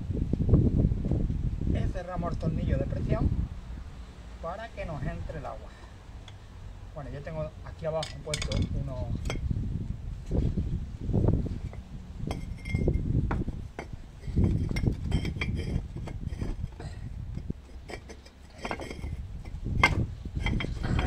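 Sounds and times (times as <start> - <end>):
clay bricks clinking: 7.9 - 9.4, 11.7 - 21.0.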